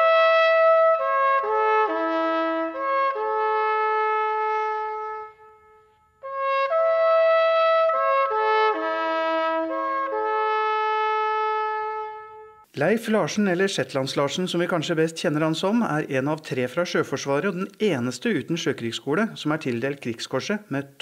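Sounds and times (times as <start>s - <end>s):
solo trumpet melody: 0.0s - 12.7s.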